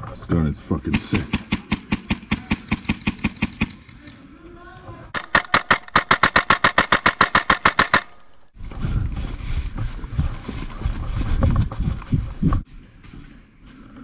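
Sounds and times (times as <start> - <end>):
airsoft rifle rapid fire: 5.2 - 8.5
wind on microphone: 8.6 - 12.7.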